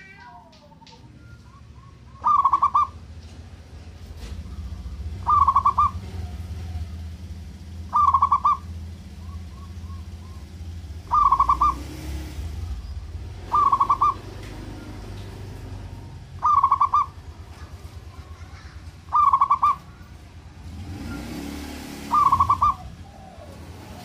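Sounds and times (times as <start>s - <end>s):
dove trilling coos: 0.9s - 3.0s, 4.4s - 12.7s, 13.4s - 15.0s, 16.1s - 20.2s, 22.0s - 24.0s.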